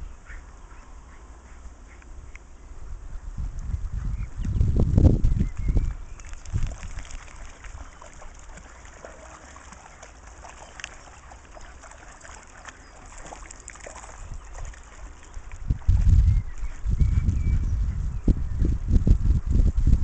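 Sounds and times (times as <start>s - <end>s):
dogs splashing in shallow water: 5.4s - 17.6s.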